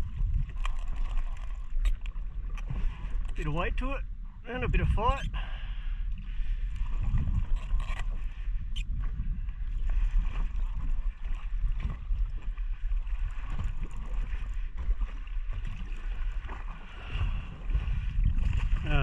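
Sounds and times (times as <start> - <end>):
wind rumbling on microphone: 0.0 - 19.0
water slapping against boat hull: 6.7 - 19.0.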